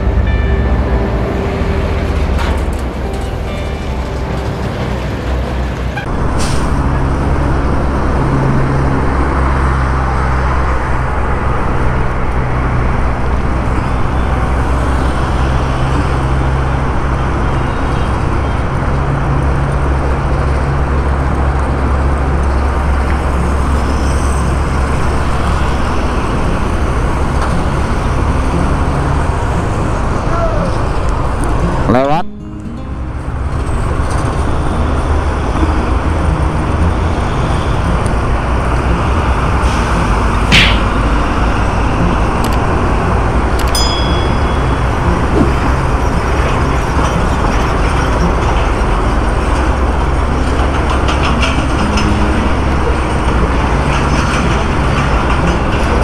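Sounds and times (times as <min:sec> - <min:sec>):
heavy truck passing: 0:00.0 - 0:56.0
vehicle engine drone: 0:00.0 - 0:56.0
tyre and wind noise: 0:33.5 - 0:56.0.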